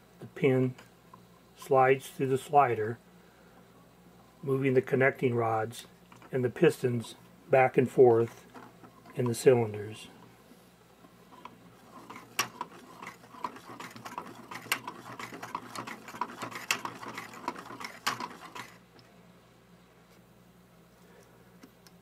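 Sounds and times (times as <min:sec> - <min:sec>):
plastic model clicking and rattling: 0:12.0 - 0:18.8.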